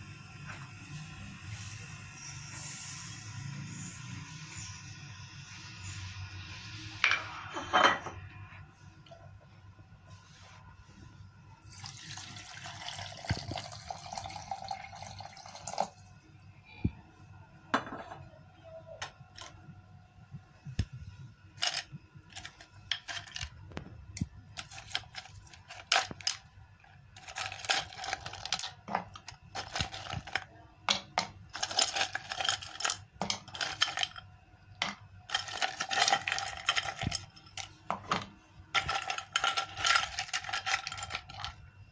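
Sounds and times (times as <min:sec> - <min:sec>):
milk pouring into blender jar: 0:11.7 - 0:16.0
ice cubes clinking against glass: 0:21.6 - 0:23.5, 0:24.6 - 0:26.4, 0:27.2 - 0:34.2, 0:34.8 - 0:37.7, 0:38.8 - 0:41.6.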